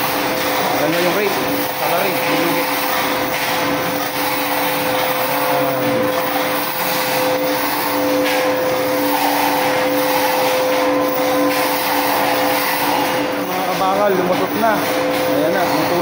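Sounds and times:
machine drone with two-note hum: 0.0 - 16.0.

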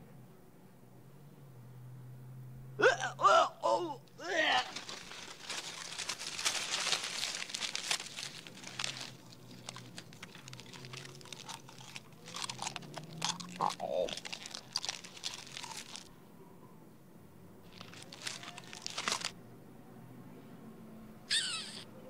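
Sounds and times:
foil crunching between teeth: 4.2 - 16.1, 17.7 - 19.4.

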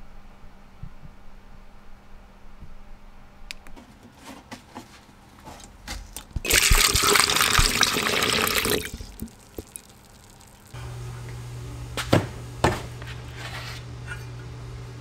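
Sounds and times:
liquid pouring into plastic tub: 6.2 - 10.7.

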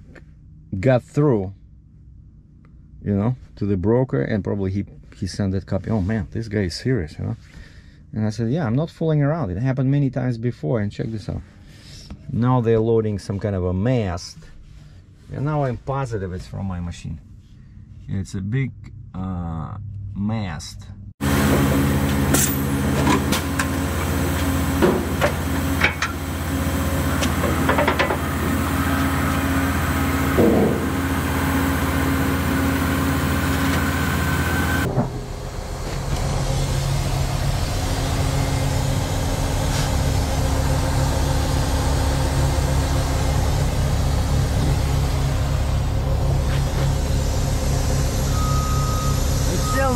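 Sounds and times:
diesel engines running: 21.2 - 49.9
knocks and clanks: 22.1 - 26.2, 27.2 - 28.6, 30.3 - 31.1, 34.9 - 36.6.

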